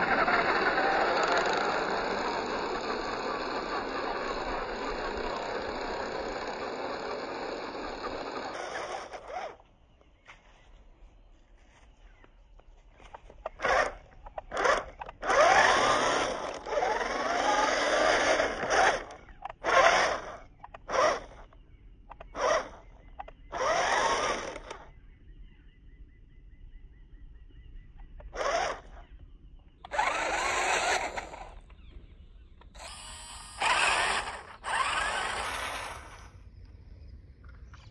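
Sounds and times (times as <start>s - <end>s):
toy car electric motor whining: 0.0s - 9.6s, 13.1s - 21.5s, 22.2s - 24.9s, 28.3s - 29.0s, 29.8s - 31.8s, 32.7s - 36.4s.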